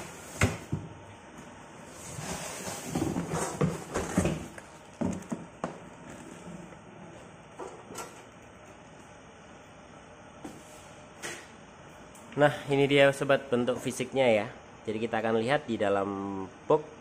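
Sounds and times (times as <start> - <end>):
cardboard rustling and scraping: 1.9 - 5.4.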